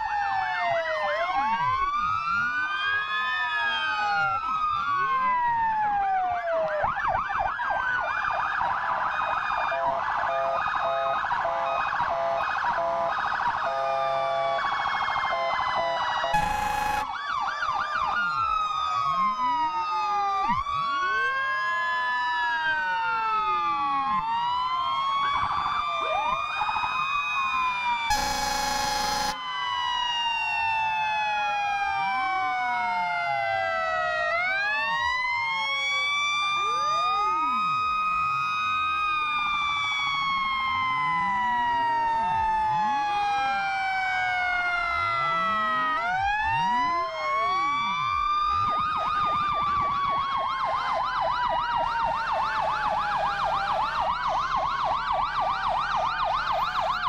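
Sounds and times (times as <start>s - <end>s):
sirens wailing: 0.0s - 57.0s
sirens yelping: 0.0s - 57.0s
horn blasts: 16.4s - 17.1s, 28.1s - 29.4s.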